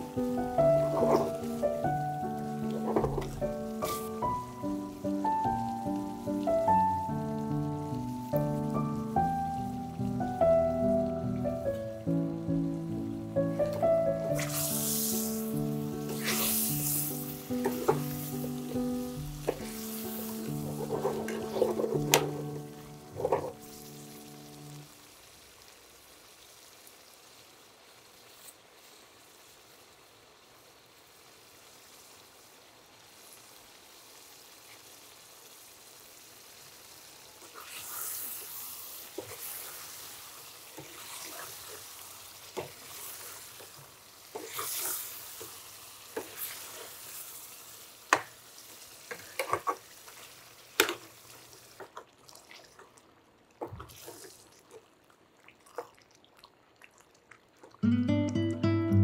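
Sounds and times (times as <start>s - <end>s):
curry simmering: 0.0s - 57.9s
ladle knocking against pan: 2.8s - 3.4s
wet stirring: 20.4s - 23.6s.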